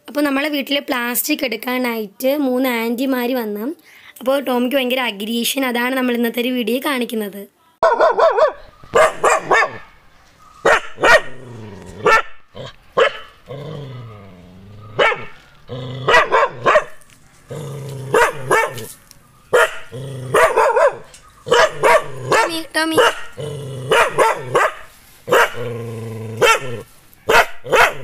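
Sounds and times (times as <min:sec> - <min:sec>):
dog barking aggressively: 0:07.8 - 0:10.0, 0:10.6 - 0:13.6, 0:14.9 - 0:15.4, 0:16.0 - 0:18.9, 0:19.5 - 0:28.0
dog growling: 0:11.0 - 0:18.9, 0:19.6 - 0:24.7, 0:25.3 - 0:26.9.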